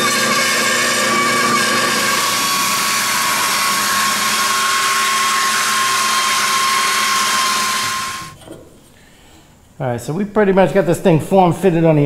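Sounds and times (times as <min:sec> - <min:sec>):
belt sander whining: 0:00.0 - 0:08.4.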